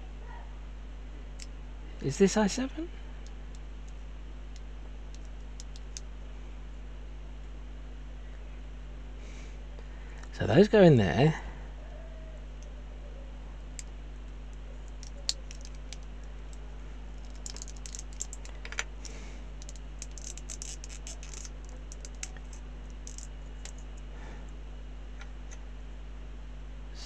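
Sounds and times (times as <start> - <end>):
plastic parts clicking together: 14.8 - 16.1, 17.2 - 23.8.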